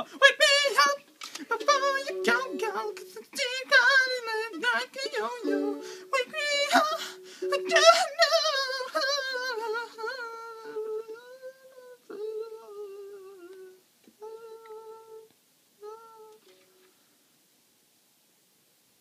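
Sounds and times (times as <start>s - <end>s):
person singing and humming: 0.0s - 16.7s
faint mandolin: 0.9s - 11.5s.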